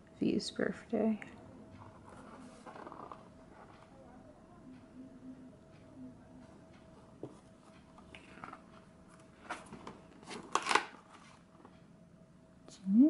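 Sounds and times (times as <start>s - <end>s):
calendar pages rustling: 1.8s - 3.7s, 8.2s - 11.7s.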